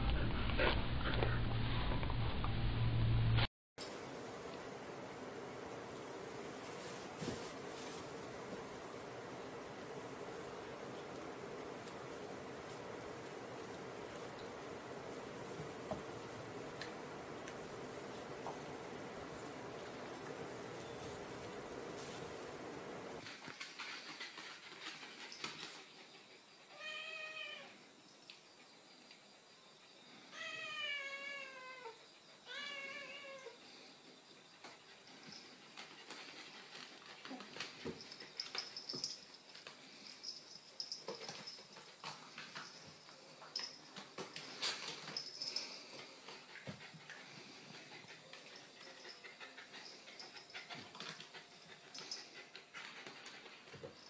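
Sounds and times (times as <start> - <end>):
animals scuffling: 5.8 - 8.9, 10.5 - 25.9
cat meowing: 26.7 - 27.8, 30.4 - 33.6.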